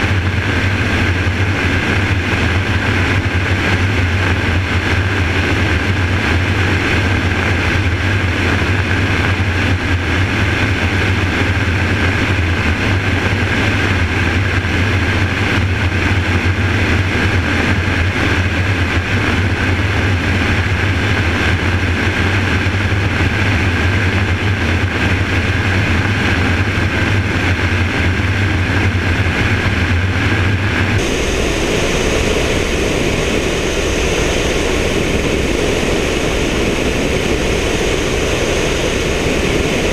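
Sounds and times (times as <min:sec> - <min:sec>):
helicopter rotor and engine drone: 0:00.0 - 0:39.9.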